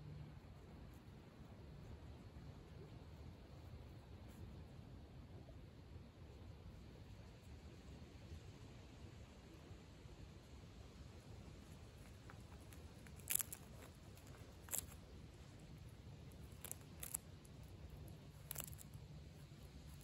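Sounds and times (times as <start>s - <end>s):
low steady rumble: 0.0s - 20.0s
animal crunching peanuts: 11.2s - 20.0s.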